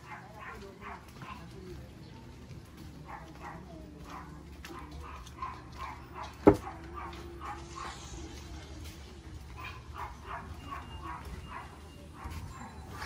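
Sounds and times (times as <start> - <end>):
dog barking and yipping: 3.1 - 8.1, 9.4 - 13.0.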